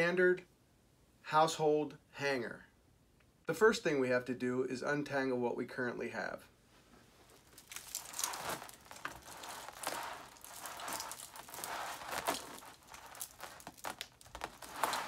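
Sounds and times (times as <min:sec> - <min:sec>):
wires sliding and rustling: 0:06.7 - 0:15.0.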